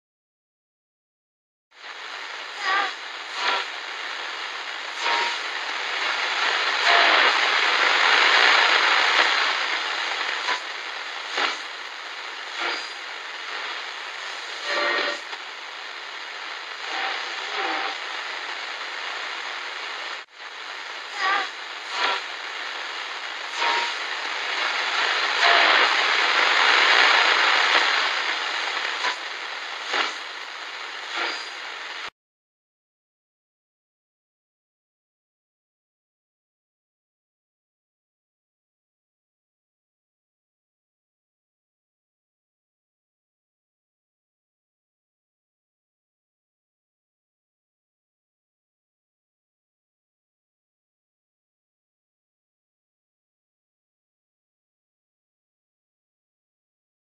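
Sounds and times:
harsh hissing noise: 1.8 - 32.1.

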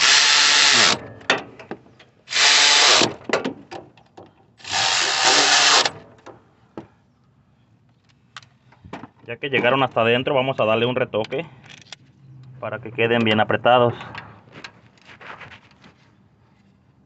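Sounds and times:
power tool driving bolts: 0.0 - 3.9, 4.6 - 6.4.

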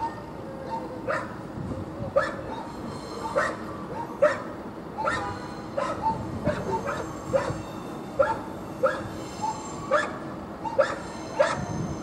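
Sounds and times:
dog barking: 0.0 - 1.4, 2.2 - 2.5, 3.3 - 7.6, 8.2 - 9.1, 9.9 - 11.6.

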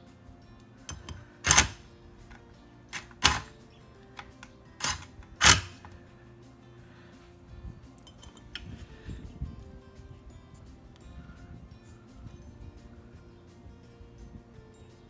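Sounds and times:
power driver driving bolts: 0.9 - 1.8, 2.9 - 3.6, 4.2 - 6.0, 8.0 - 8.7.

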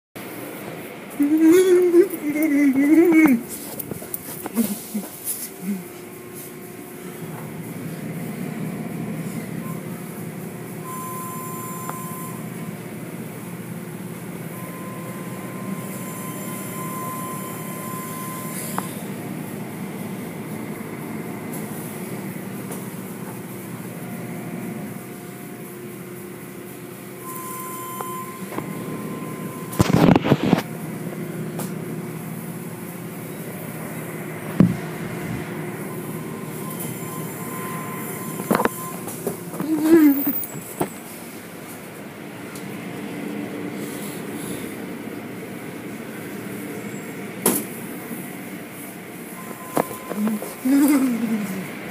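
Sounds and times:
car wash mechanical rumble: 0.2 - 51.9
high steady whine: 0.2 - 51.9
loud burst of noise: 23.6 - 39.1.

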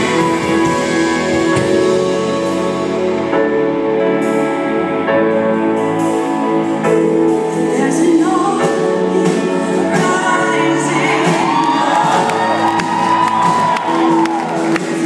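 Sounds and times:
worship band playing: 0.0 - 15.0
person singing: 7.2 - 13.1.

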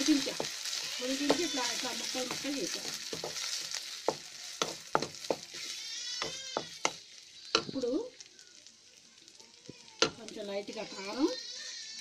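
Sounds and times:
spatula scraping a pan: 0.0 - 7.8
chicken sizzling in oil: 0.0 - 12.0.

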